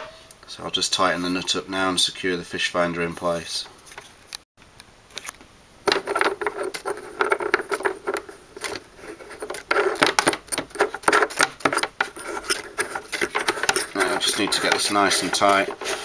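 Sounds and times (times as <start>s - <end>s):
plastic clicks and scrapes: 5.1s - 16.0s.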